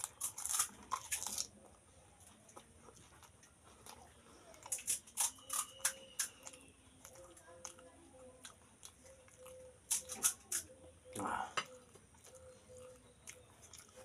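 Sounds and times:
crunching fried shells: 0:00.0 - 0:10.8.

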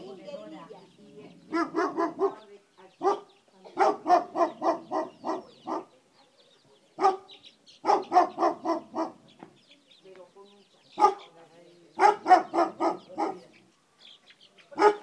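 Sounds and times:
dog barking: 0:01.5 - 0:09.2, 0:11.0 - 0:11.3, 0:12.0 - 0:13.5, 0:14.8 - 0:15.0.

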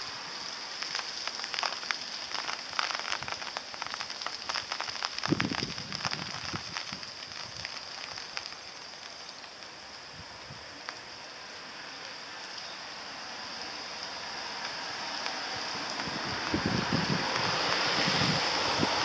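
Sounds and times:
rain falling: 0:00.0 - 0:19.0.

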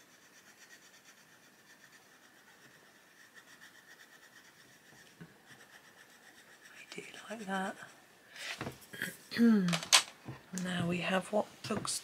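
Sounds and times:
coloured pencil scratching paper: 0:00.0 - 0:09.3.

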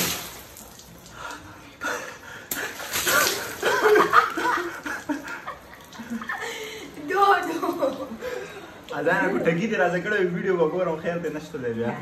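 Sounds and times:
man and boy laughing: 0:03.1 - 0:06.6.

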